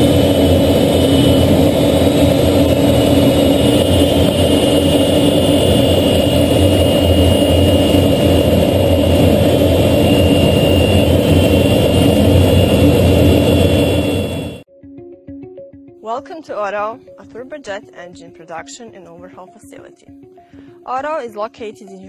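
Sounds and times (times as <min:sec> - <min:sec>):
high turbine whine: 0:00.0 - 0:14.7
jet engine and rushing air: 0:00.0 - 0:14.7.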